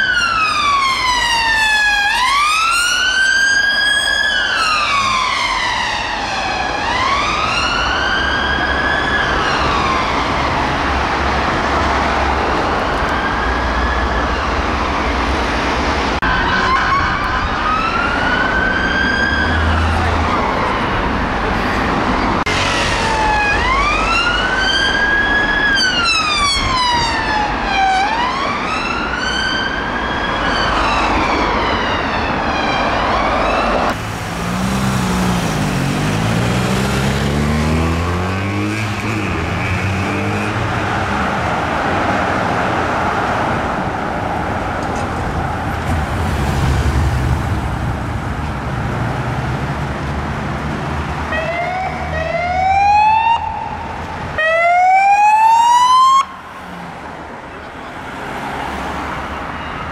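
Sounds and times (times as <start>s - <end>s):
police siren wailing: 0.0s - 15.4s, 16.2s - 21.5s, 22.4s - 34.0s, 51.3s - 56.8s
traffic: 0.0s - 59.9s
motorcycles: 33.9s - 41.6s.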